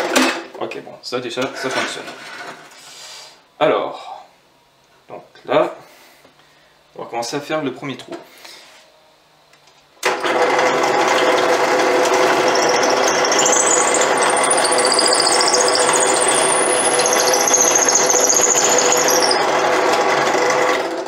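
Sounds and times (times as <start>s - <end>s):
drill press motor running: 10.0s - 21.0s
drill bit boring into wood: 10.1s - 21.0s
high wavering squeal: 12.3s - 19.7s.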